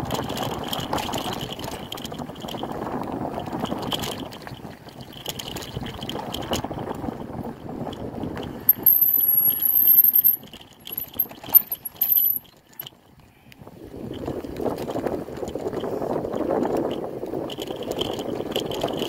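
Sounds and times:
bicycle rolling on dirt trail: 0:00.0 - 0:13.1, 0:13.7 - 0:19.0
bicycle parts rattling: 0:08.5 - 0:12.9.

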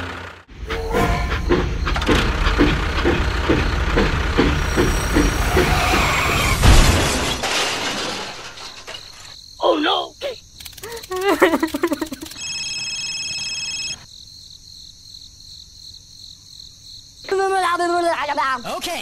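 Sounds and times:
loud rattling and clattering: 0:00.7 - 0:09.2
regular knocking: 0:01.3 - 0:05.8.

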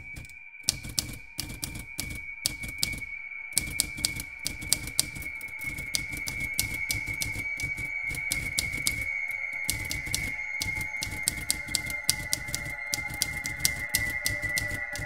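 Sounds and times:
steady high tone: 0:00.0 - 0:15.0
typewriter keys striking: 0:00.0 - 0:15.0.

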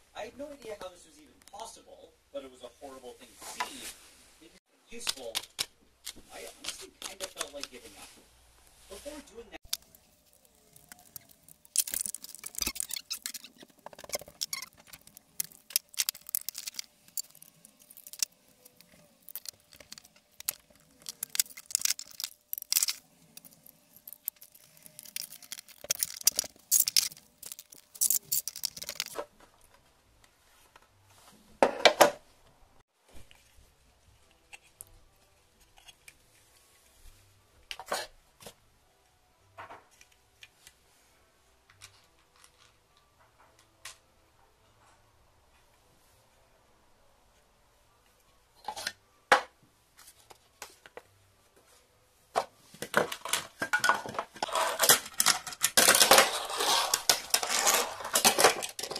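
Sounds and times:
plastic pieces clicking and rattling: 0:09.6 - 0:29.2, 0:53.0 - 0:58.9
plastic clatter: 0:09.7 - 0:29.3, 0:52.8 - 0:58.9.

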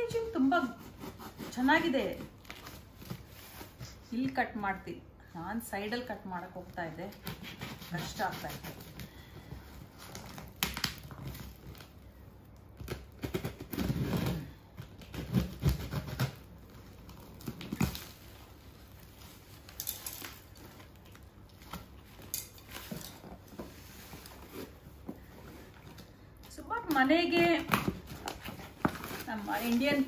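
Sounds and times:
tape and cardboard tearing: 0:07.1 - 0:09.0, 0:12.8 - 0:25.3.

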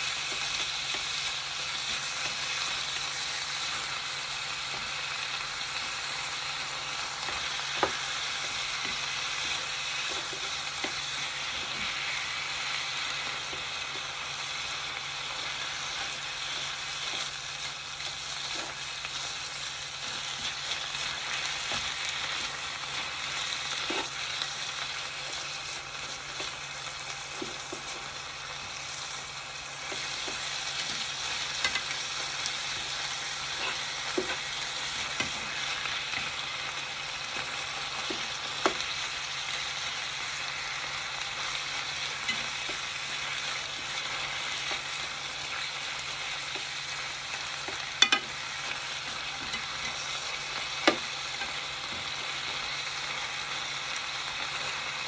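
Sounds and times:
food sizzling in a frying pan: 0:00.0 - 0:55.0
utensils clicking against pan: 0:47.5 - 0:52.2.

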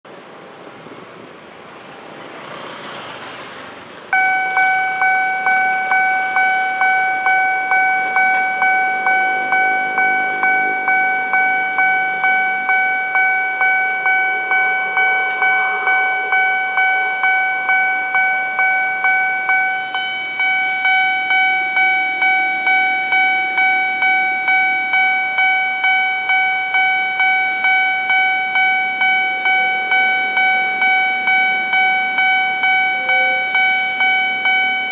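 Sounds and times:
faint road traffic: 0:00.1 - 0:34.9
level crossing warning bell: 0:04.1 - 0:34.9.

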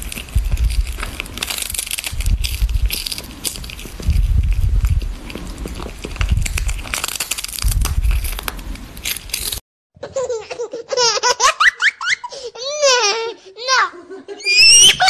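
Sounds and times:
cat crunching dried fish: 0:00.0 - 0:09.6.

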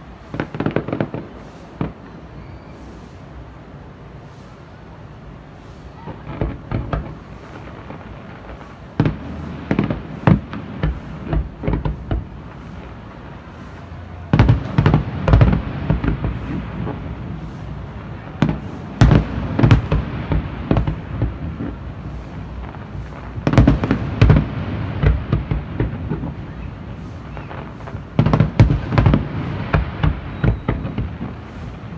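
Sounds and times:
fireworks bursting with sharp bangs: 0:00.0 - 0:31.9.

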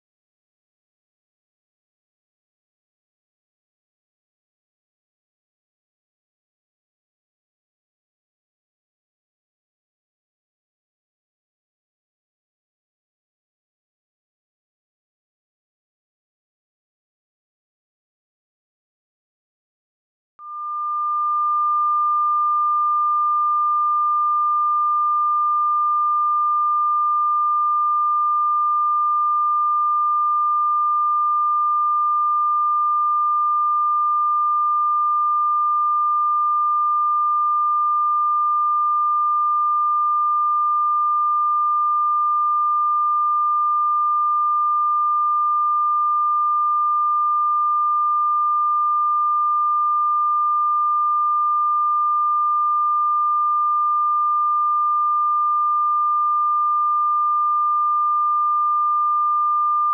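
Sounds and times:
high-pitched sine test tone: 0:20.4 - 0:59.9.

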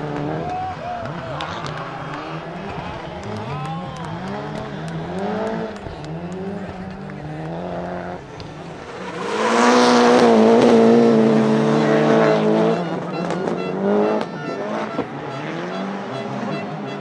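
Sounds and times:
rally car engine at high revs: 0:00.0 - 0:17.0.

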